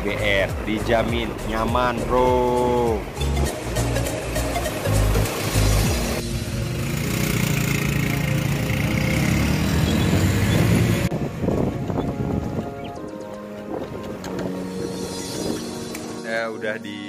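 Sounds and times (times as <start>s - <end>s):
road noise: 0.0s - 17.0s
motorcycle engine running: 5.8s - 11.1s.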